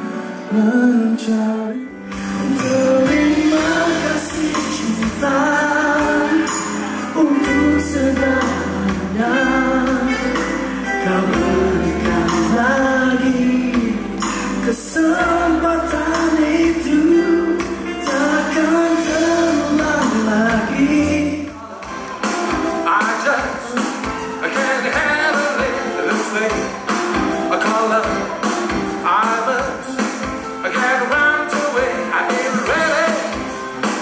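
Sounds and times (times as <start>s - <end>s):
man singing into a microphone: 0.0s - 21.8s, 22.8s - 26.8s, 27.4s - 34.0s
live band playing: 0.0s - 34.0s
bass line: 2.0s - 22.8s.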